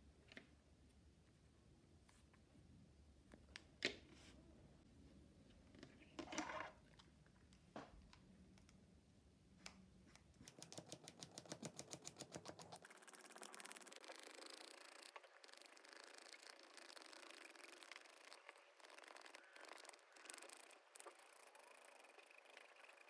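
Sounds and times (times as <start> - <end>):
grip tape rasping: 10.2 - 23.0.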